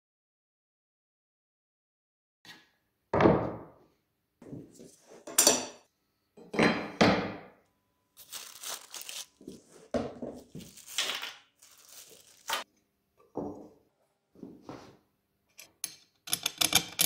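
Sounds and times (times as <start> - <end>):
wood and metal bars knocking on workbench: 3.2 - 3.8, 6.4 - 7.5
plastic bag crinkling: 8.2 - 12.7.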